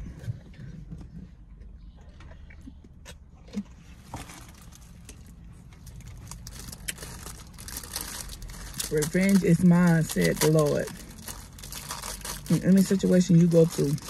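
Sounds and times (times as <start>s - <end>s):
plastic wrapper crinkling: 4.2s - 14.0s.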